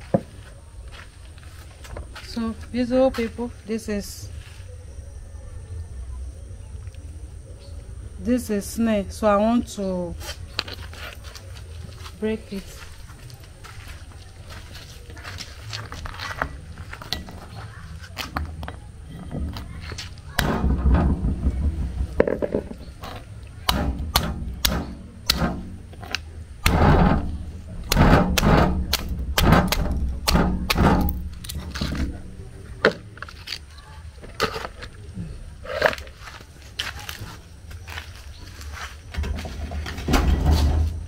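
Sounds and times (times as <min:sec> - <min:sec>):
stone pounding snail shells: 0:22.2 - 0:32.2.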